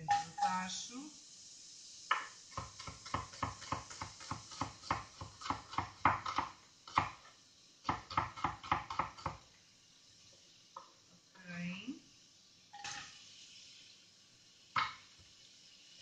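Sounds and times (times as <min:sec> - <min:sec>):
knife chopping on wooden board: 0:02.6 - 0:07.2.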